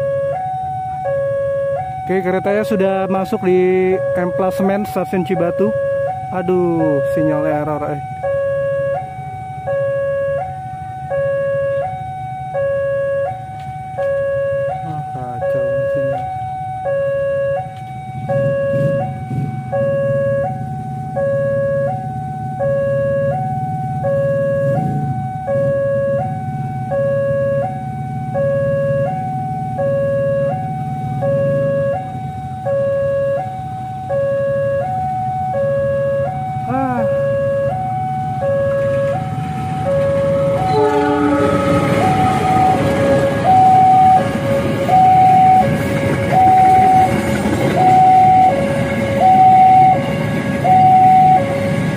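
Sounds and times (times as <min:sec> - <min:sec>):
diesel locomotive rumble: 0:00.0 - 0:51.9
level crossing two-tone alarm: 0:00.0 - 0:51.9.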